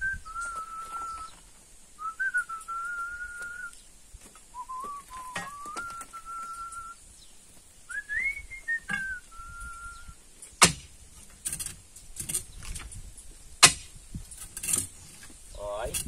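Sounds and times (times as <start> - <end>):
person whistling a tune: 0.0 - 1.4, 2.0 - 3.8, 4.5 - 7.0, 7.9 - 10.2
sharp knocks: 10.6 - 11.0, 13.6 - 14.0.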